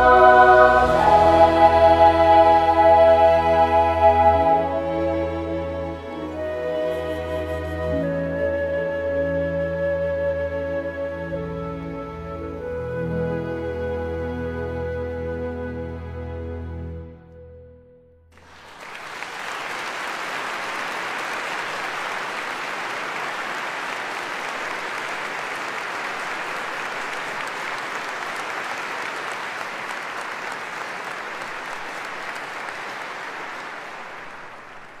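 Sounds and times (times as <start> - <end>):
audience applauding: 18.4 - 35.0.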